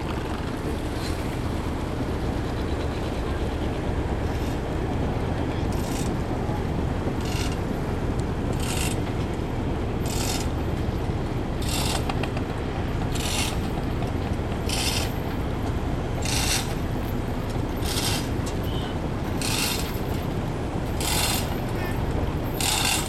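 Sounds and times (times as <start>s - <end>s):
boat engine low rumble: 0.0s - 23.0s
high rasping scrape: 11.6s - 12.1s, 16.2s - 16.8s, 17.8s - 18.8s, 19.4s - 20.0s, 20.9s - 22.0s, 22.6s - 23.0s.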